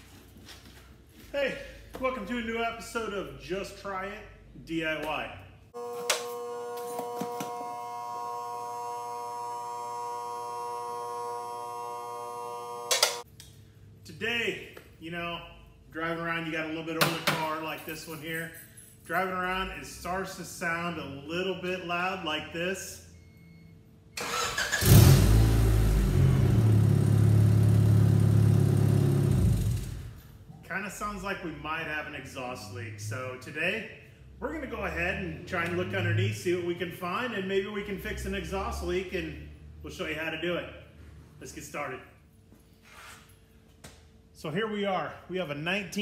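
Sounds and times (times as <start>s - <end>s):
electronic buzzing hum: 5.8s - 13.2s
car engine starting and running: 24.2s - 30.2s.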